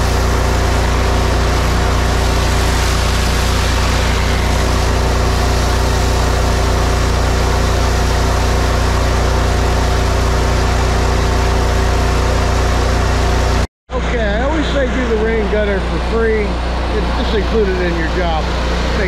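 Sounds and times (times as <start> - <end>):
water spray hissing on concrete: 0.0 - 10.2
pressure washer engine running: 0.0 - 19.0.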